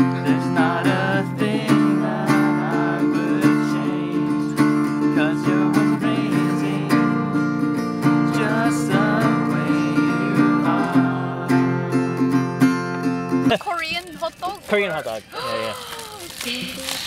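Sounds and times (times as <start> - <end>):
people singing along: 0.0 - 12.1
acoustic guitar strumming: 0.0 - 15.3.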